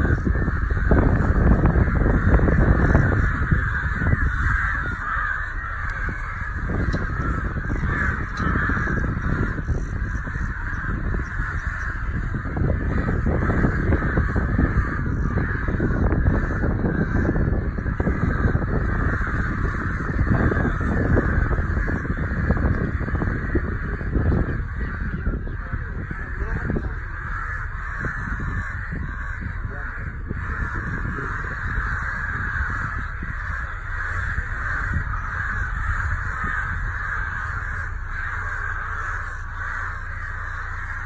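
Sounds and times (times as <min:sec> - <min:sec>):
crows cawing: 0:00.0 - 0:41.0.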